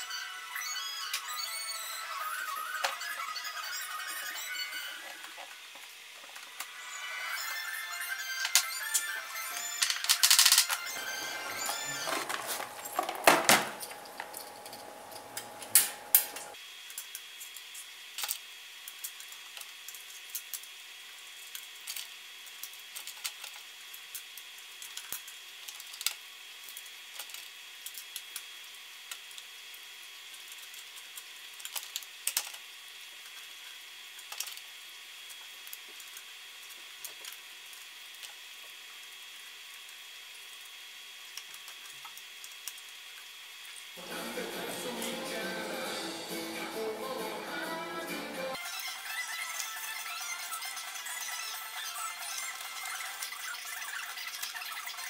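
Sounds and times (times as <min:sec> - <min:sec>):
small metal parts clicking: 0:21.4 - 0:28.5, 0:30.3 - 0:32.6, 0:33.2 - 0:34.7.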